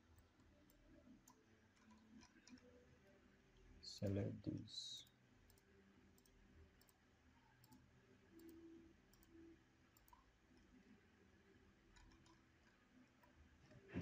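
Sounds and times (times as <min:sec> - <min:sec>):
faint computer mouse clicks: 0:05.5 - 0:07.0, 0:07.6 - 0:10.7, 0:11.9 - 0:13.4.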